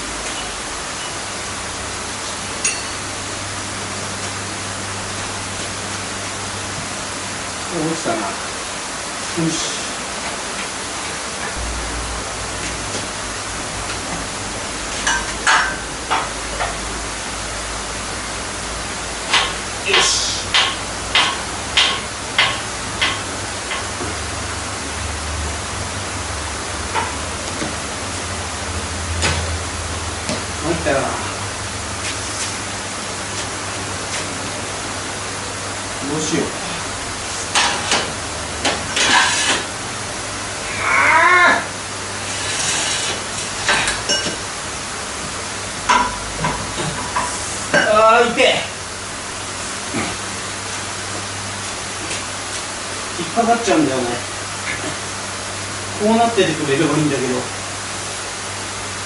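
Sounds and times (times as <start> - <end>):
steady hiss: 0.0 - 28.8
steady background hiss: 0.0 - 59.0
wavering strained voice-like sound: 40.6 - 41.8.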